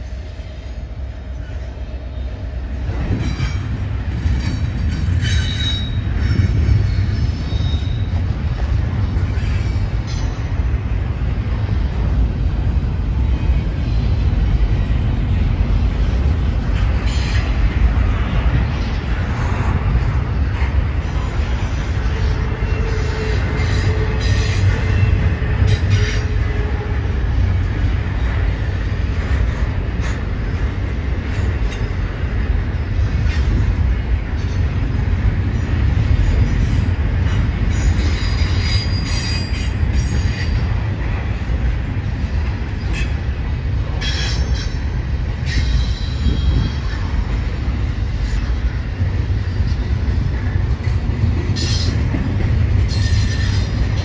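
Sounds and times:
train wheel squeals: 0:00.0 - 0:08.4, 0:09.1 - 0:10.7, 0:16.7 - 0:17.6, 0:21.0 - 0:27.1, 0:35.4 - 0:40.8, 0:42.2 - 0:54.0
steel wheels rumbling on track: 0:00.0 - 0:54.0.

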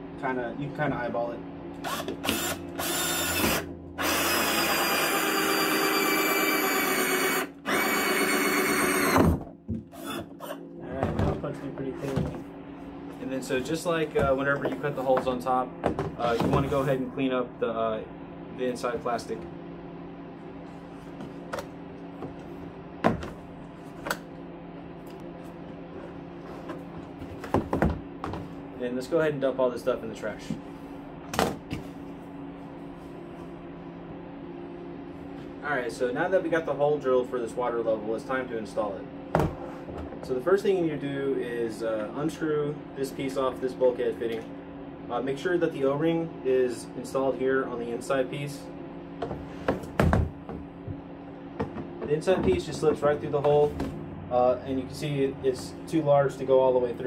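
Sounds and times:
steady low hum: 0:00.0 - 0:57.0
drill hole saw cutting plastic: 0:01.8 - 0:10.6.

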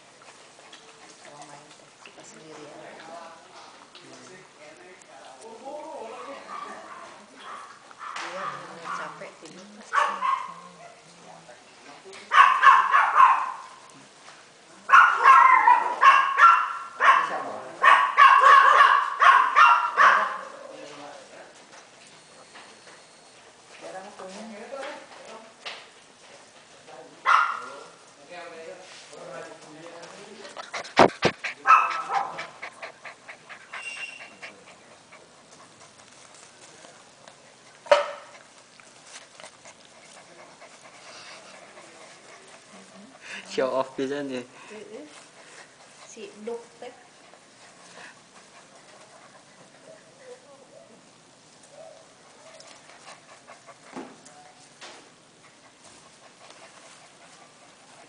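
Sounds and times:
puppy panting: 0:00.1 - 0:02.8, 0:29.1 - 0:58.0
puppies barking high-pitched: 0:09.9 - 0:10.6, 0:12.3 - 0:13.8, 0:14.9 - 0:20.5, 0:31.6 - 0:32.6.

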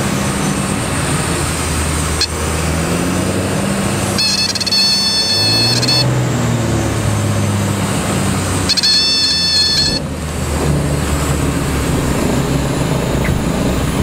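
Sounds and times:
aircraft engine and propeller drone: 0:00.0 - 0:14.0
high steady warning tone: 0:02.0 - 0:02.7, 0:03.9 - 0:06.3, 0:08.5 - 0:10.2
wind noise: 0:09.6 - 0:14.0.

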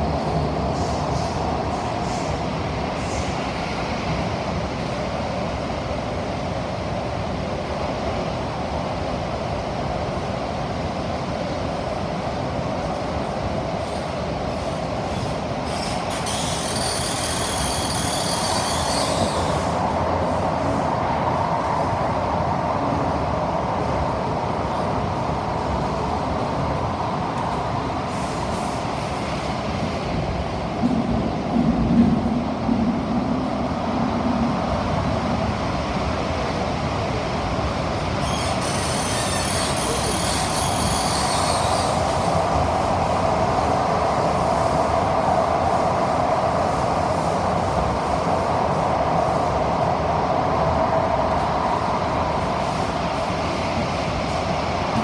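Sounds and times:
rumble of wheels on rail: 0:00.0 - 0:55.0
wheels squealing: 0:15.7 - 0:19.7, 0:38.2 - 0:42.1.

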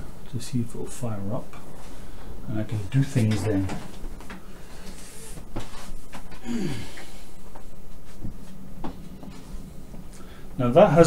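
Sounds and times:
person grunting or sighing: 0:06.4 - 0:07.3.

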